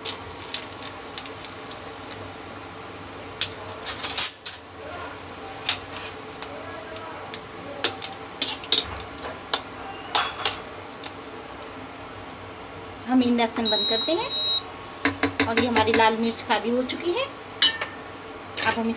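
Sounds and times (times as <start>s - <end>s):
chillies crackling in hot oil: 0.0s - 18.9s
metal spoon stirring in a pan: 5.6s - 11.7s.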